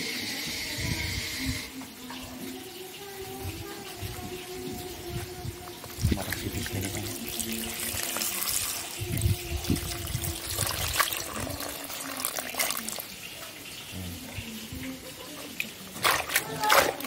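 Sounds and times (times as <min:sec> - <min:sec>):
tap water splashing into sink: 0:05.6 - 0:14.9, 0:15.5 - 0:17.0.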